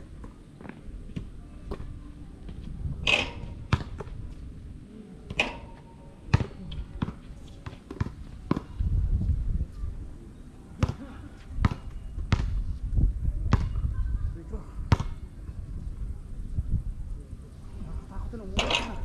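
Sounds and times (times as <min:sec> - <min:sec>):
wind rumble on microphone: 0:00.9 - 0:05.6, 0:06.5 - 0:10.4, 0:11.1 - 0:19.0
basketball bouncing on concrete: 0:03.1 - 0:04.1, 0:06.3 - 0:08.7, 0:10.8 - 0:11.0, 0:11.6 - 0:12.6, 0:13.5 - 0:13.8, 0:14.9 - 0:15.2.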